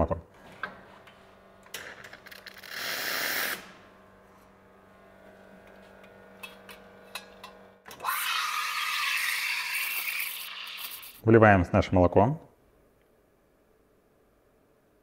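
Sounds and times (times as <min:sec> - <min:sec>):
espresso machine hum: 0:02.4 - 0:11.2
milk steaming whine and hiss: 0:08.0 - 0:11.2.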